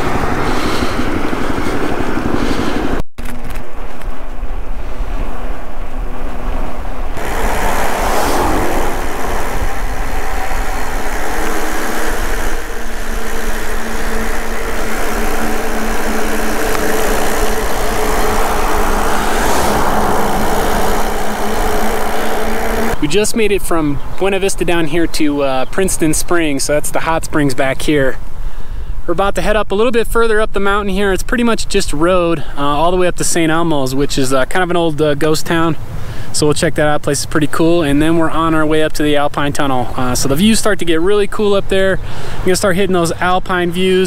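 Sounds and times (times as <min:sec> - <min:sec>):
wind rumble on microphone: 0:00.0 - 0:23.0.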